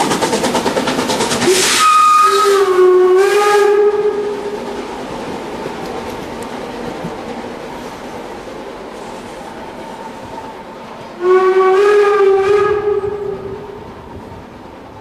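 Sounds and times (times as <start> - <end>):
rumble of rolling coaches: 0.0 - 15.0
steam whistle blast: 1.4 - 4.6, 11.2 - 13.8.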